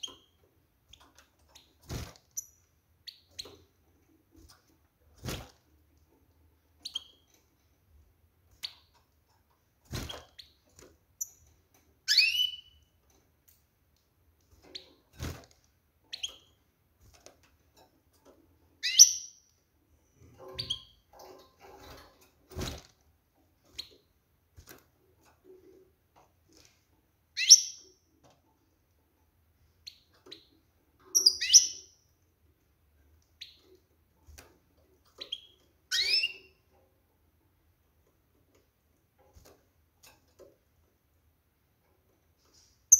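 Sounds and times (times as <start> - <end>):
goldfinch chirping calls: 18.8 - 19.3, 27.4 - 27.8, 31.2 - 31.9.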